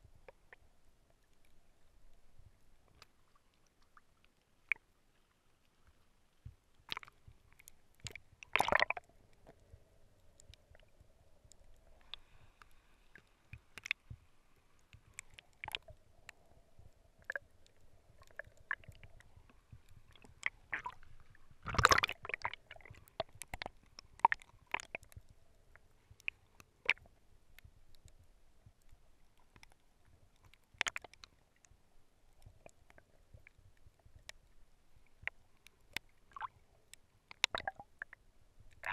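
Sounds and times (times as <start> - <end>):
faint steady hum: 0.0 - 38.9
water sloshing and bubbling: 0.0 - 38.9
water splashes: 6.8 - 9.6, 17.2 - 25.3, 37.3 - 38.9
crackling clicks: 6.9 - 31.7.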